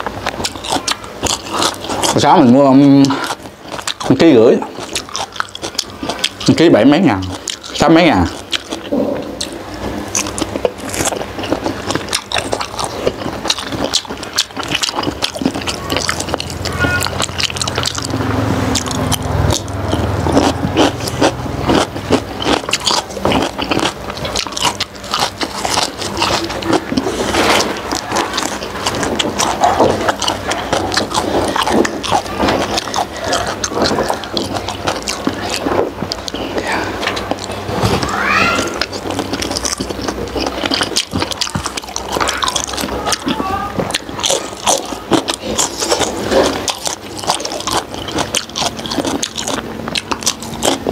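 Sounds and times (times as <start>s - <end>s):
chewing with mouth clicks: 0.0s - 50.9s
low background hum: 0.0s - 50.9s.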